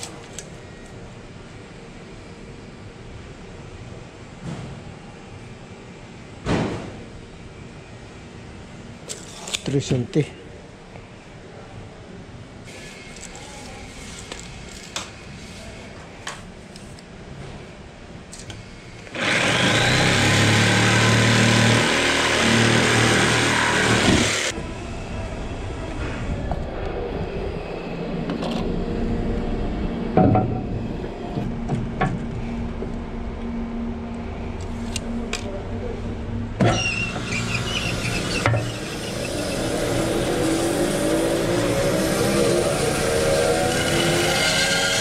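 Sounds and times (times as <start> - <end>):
steady hum: 10.3 - 44.2
jigsaw cutting wood: 19.1 - 24.5, 36.8 - 43.0.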